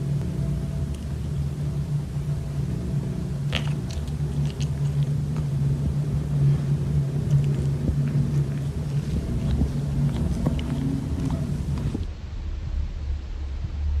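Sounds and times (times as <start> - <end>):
cat purring: 3.3 - 12.1.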